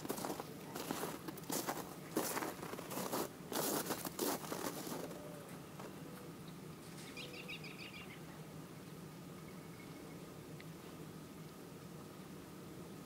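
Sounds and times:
footsteps crunching on snow: 0:00.0 - 0:06.0
bird chirping: 0:06.1 - 0:08.4.

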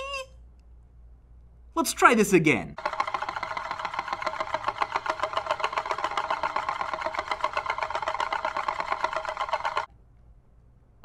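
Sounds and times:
metal disc whirring rattle: 0:02.8 - 0:09.9.

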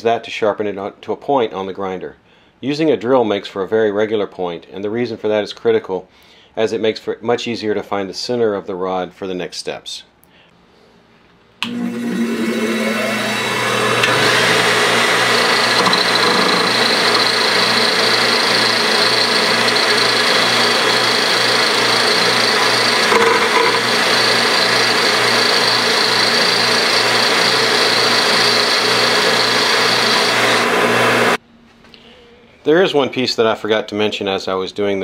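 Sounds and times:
pulsing motor hum: 0:11.6 - 0:31.4
grinding hiss: 0:14.0 - 0:31.4.

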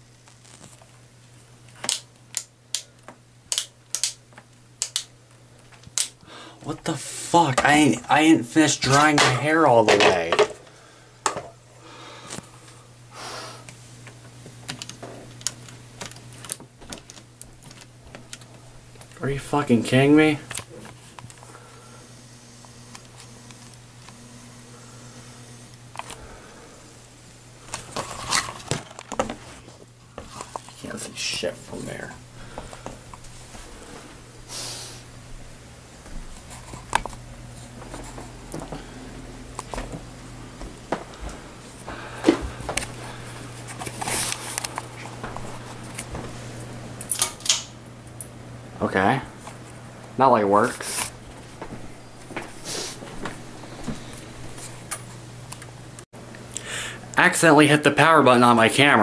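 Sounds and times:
low steady hum: 0:00.0 - 0:59.0
plug and cord clicking: 0:01.7 - 0:05.1.

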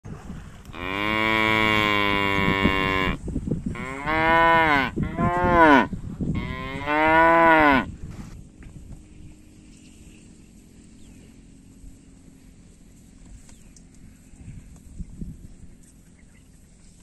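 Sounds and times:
cattle mooing: 0:00.8 - 0:03.2, 0:03.8 - 0:07.9.

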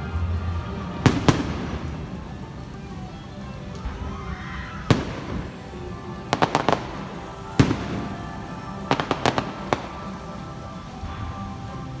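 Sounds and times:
fireworks bursting: 0:00.0 - 0:12.0
show music: 0:00.0 - 0:12.0.

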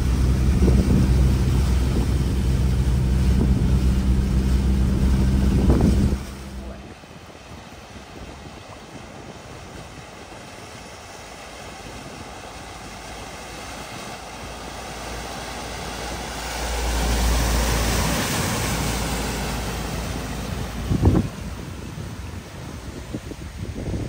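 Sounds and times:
vehicle engine: 0:00.0 - 0:06.9, 0:14.2 - 0:21.9
water splashing: 0:00.0 - 0:24.0.

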